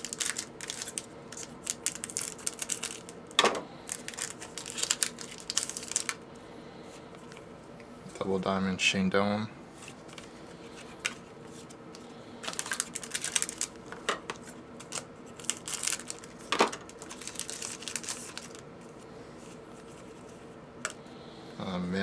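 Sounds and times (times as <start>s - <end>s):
foil wrappers crinkling and tearing: 0.0s - 6.2s, 12.4s - 19.0s.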